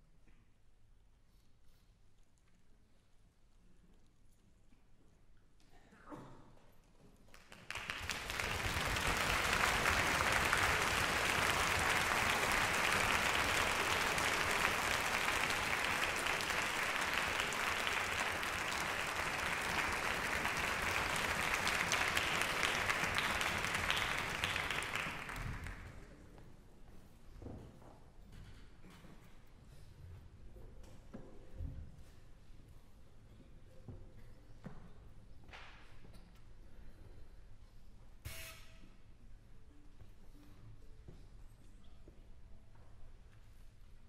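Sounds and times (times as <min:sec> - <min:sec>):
audience applauding: 0:07.3 - 0:26.0.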